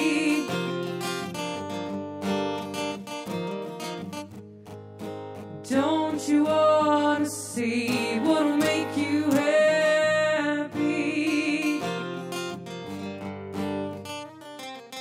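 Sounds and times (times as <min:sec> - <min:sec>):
woman singing: 0:00.0 - 0:01.2, 0:05.5 - 0:12.5
acoustic guitar: 0:00.0 - 0:15.0.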